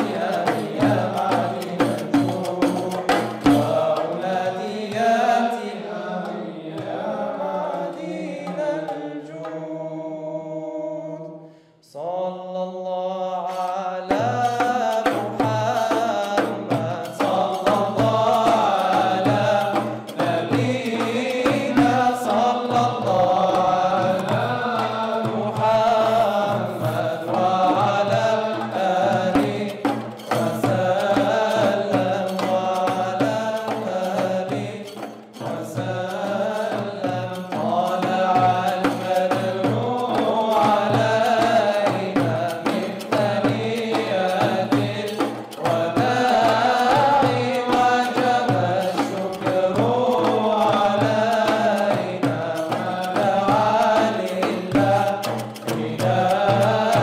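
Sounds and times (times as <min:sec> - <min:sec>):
frame drums beating: 0:00.0 - 0:05.4, 0:13.6 - 0:57.0
male ensemble singing chant: 0:00.0 - 0:57.0.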